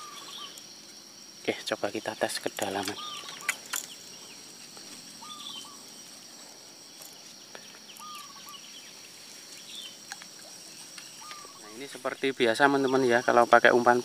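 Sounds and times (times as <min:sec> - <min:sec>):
bird wavering call: 0:00.0 - 0:00.6, 0:02.8 - 0:04.3, 0:05.2 - 0:05.9, 0:07.9 - 0:08.8, 0:11.0 - 0:11.8
high bird chirps: 0:00.0 - 0:00.7, 0:02.7 - 0:04.4, 0:05.2 - 0:05.9, 0:07.0 - 0:10.1, 0:10.7 - 0:12.2
high insect drone: 0:00.0 - 0:14.0.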